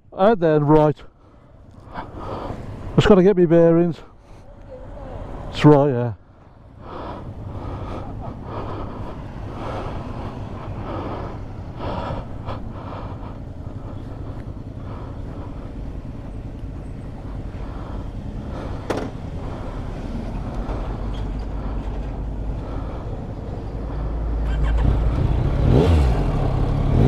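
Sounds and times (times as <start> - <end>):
motorcycle engine idling: 9.9 - 27.0.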